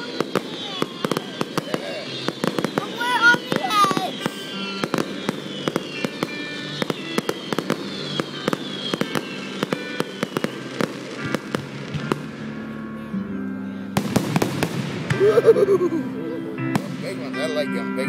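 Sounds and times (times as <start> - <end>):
fireworks cracking and popping: 0.0 - 12.4, 14.0 - 15.8.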